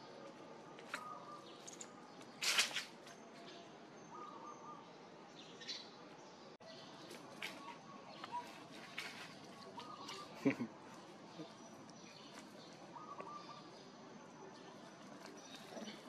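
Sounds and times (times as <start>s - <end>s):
faint chirps: 11.3s - 16.0s.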